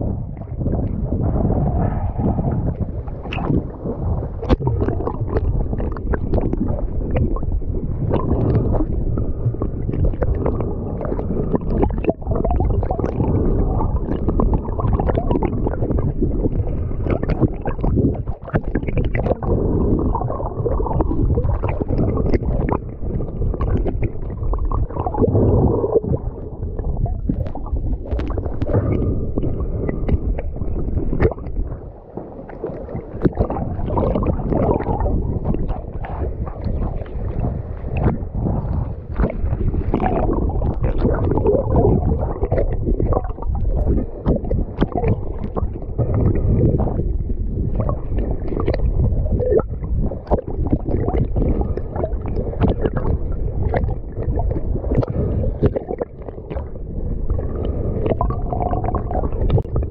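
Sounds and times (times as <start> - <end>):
sea water sloshing and gurgling: 0.0 - 59.9
small water splashes: 2.8 - 59.9.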